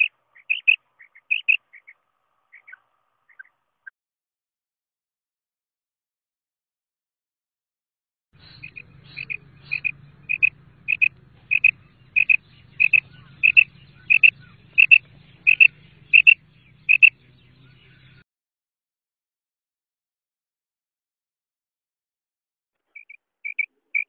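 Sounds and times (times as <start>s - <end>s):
quail calling: 0.0s - 3.6s, 8.4s - 18.2s, 22.9s - 24.0s
faint low hum: 8.4s - 18.2s.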